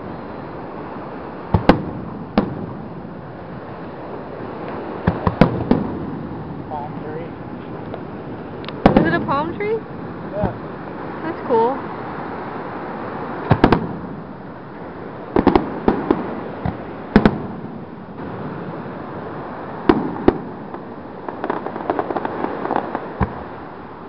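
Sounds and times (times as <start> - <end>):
fireworks booming: 0.8 - 11.6, 13.3 - 23.7
fireworks crackling pops: 1.5 - 9.8, 10.4 - 10.7, 13.4 - 14.3, 15.3 - 19.0, 19.8 - 23.7.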